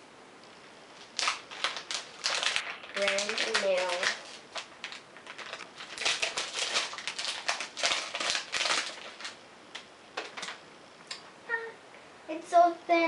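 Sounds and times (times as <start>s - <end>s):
plastic wrapping crinkling: 1.0s - 10.6s.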